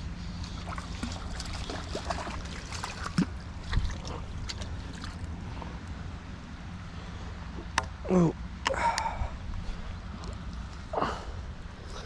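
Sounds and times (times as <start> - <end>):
small water splashes: 0.4 - 5.4.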